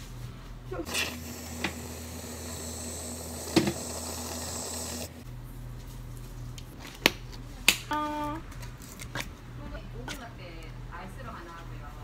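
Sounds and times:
whipped cream dispenser hissing: 0:00.9 - 0:05.2.

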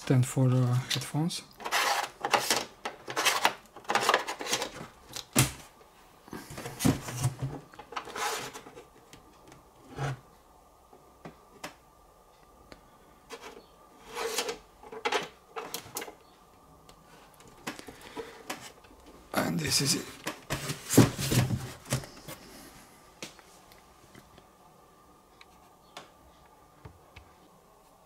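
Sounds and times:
handling rubbing and scraping: 0:01.6 - 0:04.8, 0:06.3 - 0:09.0, 0:13.3 - 0:16.1.

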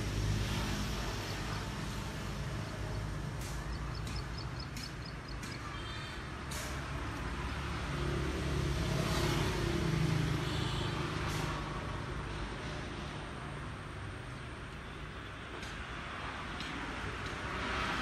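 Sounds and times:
vehicle engine rumbling: 0:00.0 - 0:10.0.

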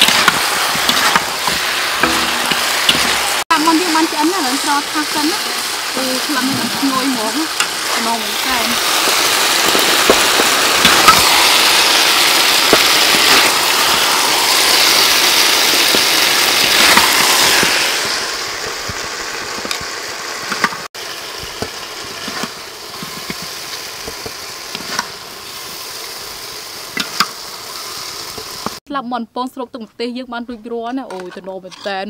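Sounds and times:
metal ladle scraping a pan: 0:00.0 - 0:03.9
chicken sizzling in sauce: 0:00.0 - 0:28.8.

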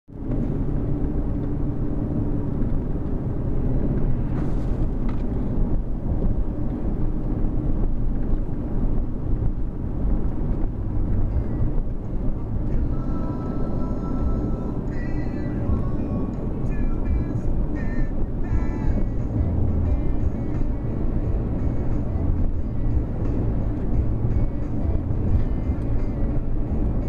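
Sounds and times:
car cabin low rumble: 0:00.1 - 0:27.0.

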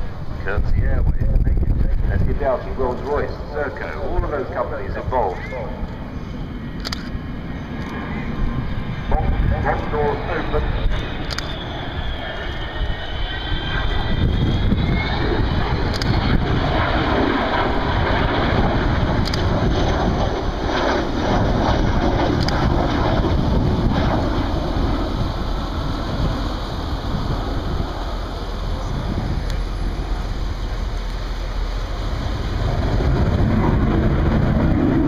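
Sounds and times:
jet bomber roaring past: 0:00.0 - 0:35.0.

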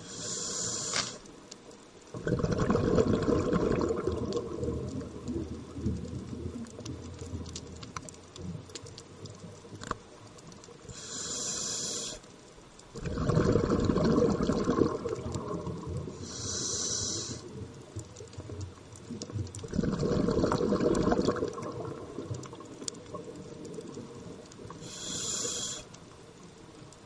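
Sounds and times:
regulator hissing inhale: 0:00.0 - 0:01.3, 0:10.9 - 0:12.3, 0:16.1 - 0:17.5, 0:24.7 - 0:26.0
exhaled bubbles rushing: 0:02.2 - 0:06.6, 0:13.0 - 0:16.2, 0:19.6 - 0:24.3.

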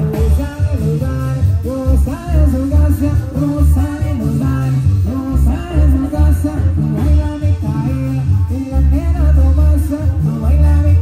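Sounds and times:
heavy low bass notes: 0:00.0 - 0:11.0
live band music: 0:00.0 - 0:11.0.

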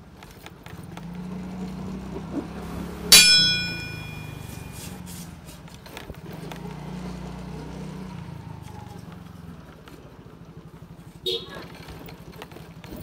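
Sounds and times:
metallic clang ringing: 0:03.1 - 0:05.0.

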